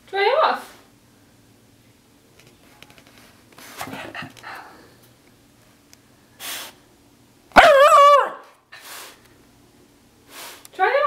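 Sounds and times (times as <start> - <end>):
dog barking: 7.6 - 8.5.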